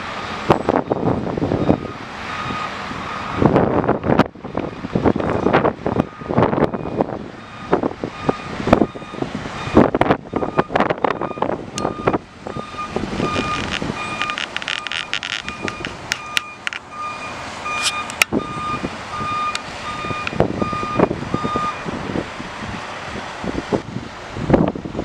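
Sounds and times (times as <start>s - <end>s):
gusty wind: 0.0s - 25.0s
vehicle rumble: 0.0s - 25.0s
truck backup alarm beeping: 0.1s - 22.0s
sharp clicks: 13.2s - 16.9s.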